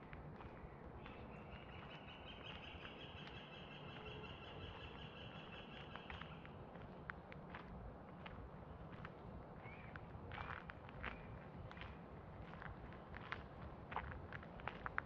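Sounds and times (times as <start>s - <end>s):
footsteps on dirt path: 6.1s - 15.0s.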